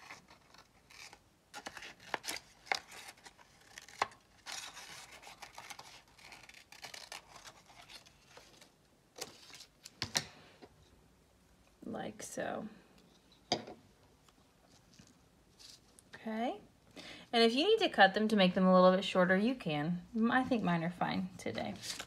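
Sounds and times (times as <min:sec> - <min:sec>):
scissors snipping paper: 0:00.0 - 0:08.1
paper rustling: 0:21.7 - 0:22.0.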